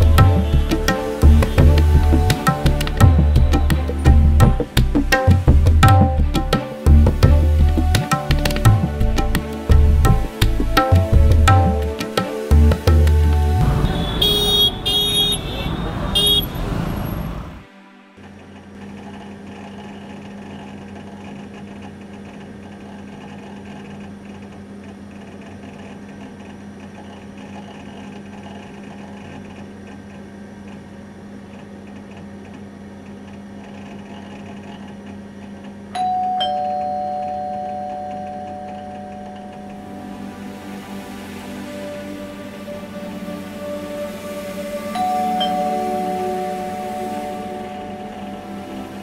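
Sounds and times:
steady low hum: 0.0 - 14.4
street traffic noise: 0.0 - 19.6, 39.1 - 49.0
two-tone ding-dong chime: 36.0 - 39.9, 45.0 - 48.8.

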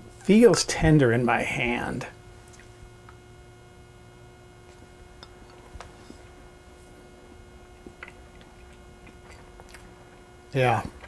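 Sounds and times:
steady hum: 0.0 - 11.0
mouth clicks of chewing: 7.8 - 9.9.

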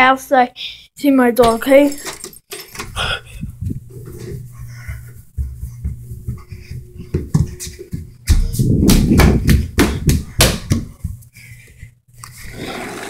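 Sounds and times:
footsteps on stairs and hard floor: 1.4 - 12.5
low rumble with sharp knocks: 3.4 - 11.2.

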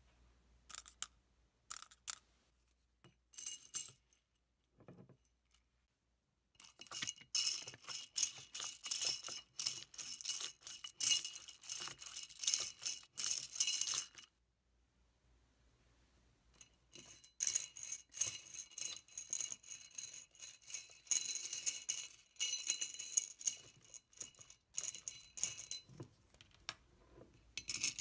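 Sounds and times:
crystals clinking against glass: 6.6 - 14.3, 17.0 - 25.8, 27.6 - 28.0
straw stirring crystals rattle: 6.6 - 14.3, 17.0 - 25.9, 27.6 - 28.0.

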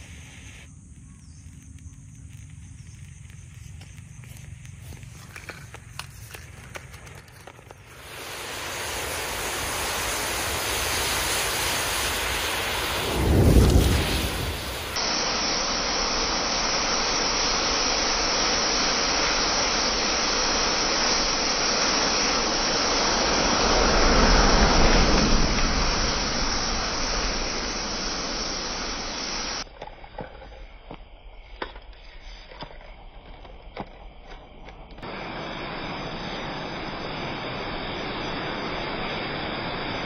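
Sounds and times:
small crackles and ticks: 0.7 - 7.9.

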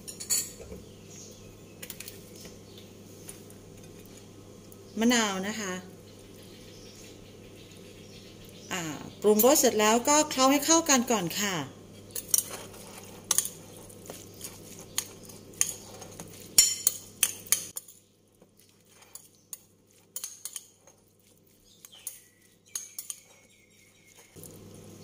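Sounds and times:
metal spoon scraping ceramic bowl: 12.0 - 17.8, 18.9 - 21.0, 21.8 - 23.5.

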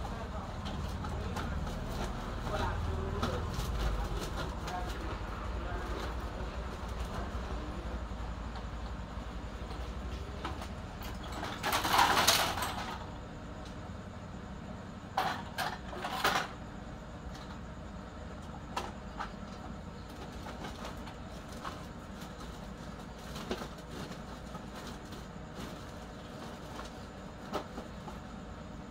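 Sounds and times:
circuit boards clattering and scraping: 9.6 - 13.2, 15.1 - 16.6.

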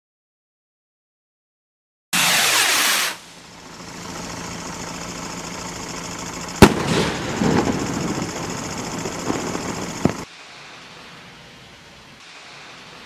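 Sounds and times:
firework bang: 2.2 - 3.4, 6.6 - 10.3
firework rocket hissing: 2.2 - 13.0
firework stars crackling: 2.2 - 13.0.

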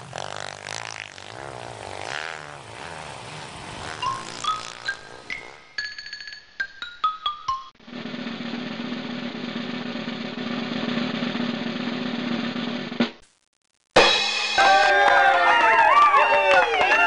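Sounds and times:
snare drum roll: 7.8 - 13.2
crowd cheering loudly: 14.5 - 17.0.

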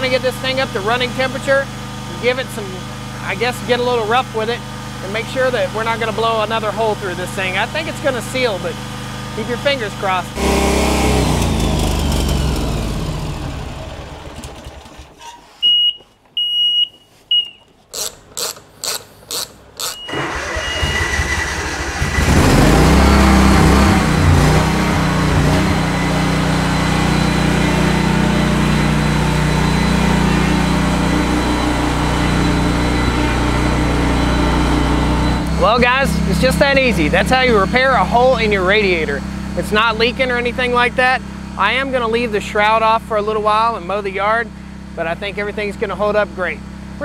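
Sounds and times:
mower engine running: 0.0 - 15.2, 17.9 - 47.0
sharp clicks: 17.9 - 20.1
short high beeps: 19.8 - 21.0.

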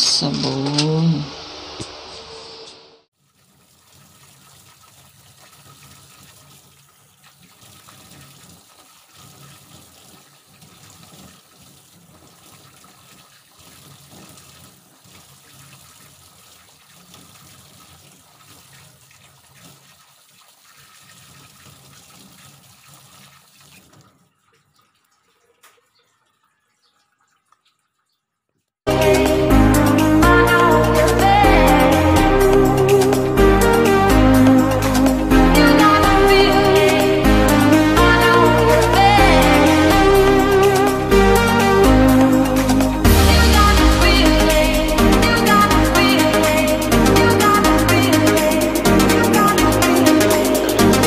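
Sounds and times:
water running at a sink: 3.2 - 28.6.

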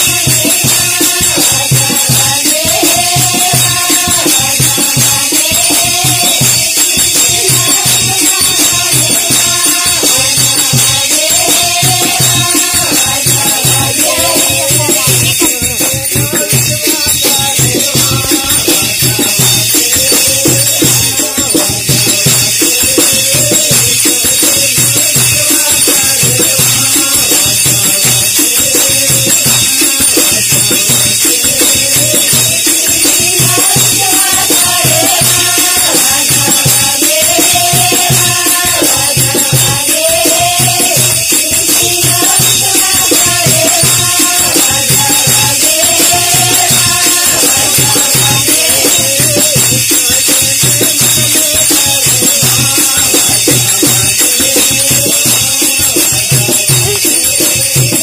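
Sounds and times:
group singing devotional song: 0.0 - 58.0
jingling rattle percussion: 0.0 - 58.0.

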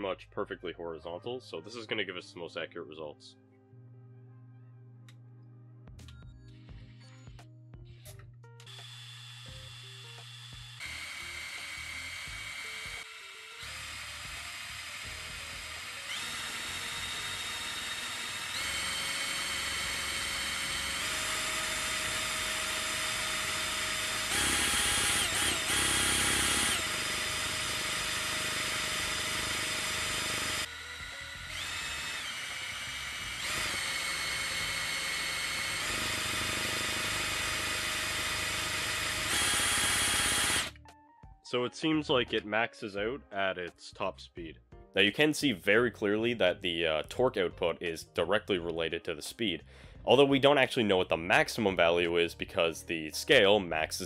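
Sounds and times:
cordless drill motor whine: 8.6 - 40.7.

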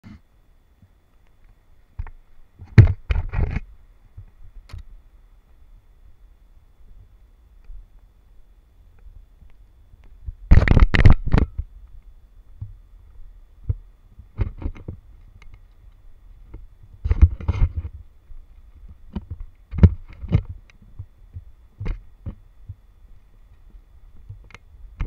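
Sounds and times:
faint low rumble: 0.0 - 25.0
camera handling knocks and rattles: 10.5 - 11.7, 19.1 - 22.4.

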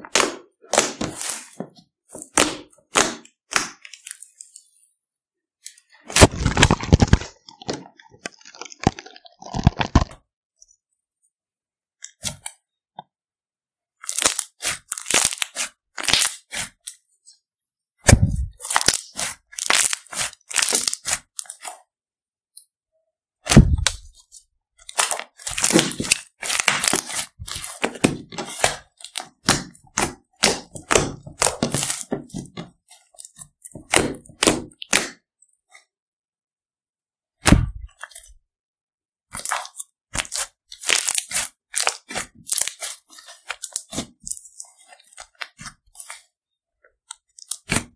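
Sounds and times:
slime crackling and popping: 6.1 - 10.2, 14.0 - 16.7, 18.1 - 21.8, 24.9 - 32.5, 39.4 - 46.2.

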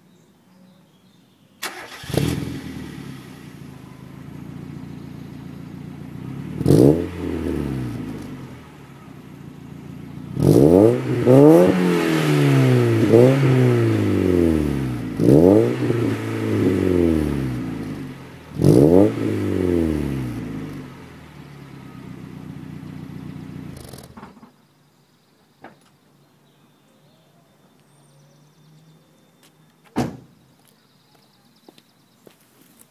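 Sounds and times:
car engine revving and idling: 1.7 - 24.2.

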